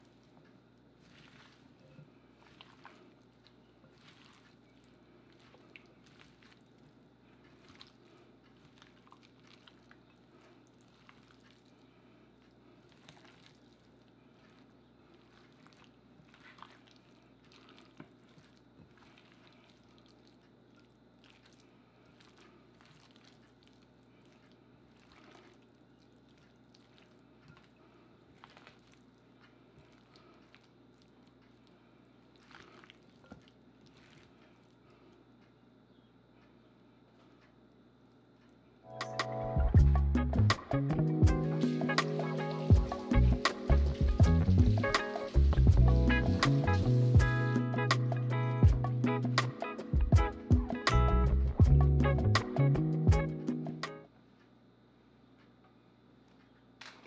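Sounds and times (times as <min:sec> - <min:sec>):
wet squelching of hands mixing: 0:00.0 - 0:35.8, 0:39.8 - 0:53.9, 0:56.2 - 0:57.0
steady low hum: 0:34.4 - 0:56.1.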